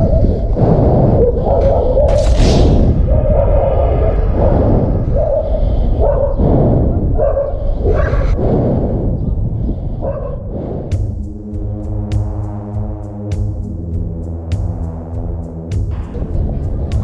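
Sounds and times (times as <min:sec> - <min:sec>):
dogs barking: 0:00.0 - 0:00.5, 0:01.2 - 0:02.2, 0:03.0 - 0:08.4, 0:10.0 - 0:10.5
low rumble: 0:00.0 - 0:17.0.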